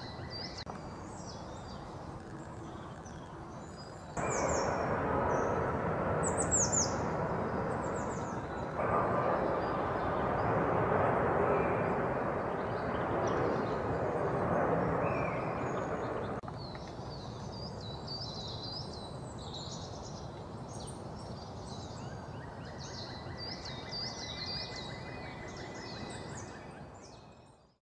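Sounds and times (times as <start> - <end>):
steady rumbling background noise: 0.6 - 16.4.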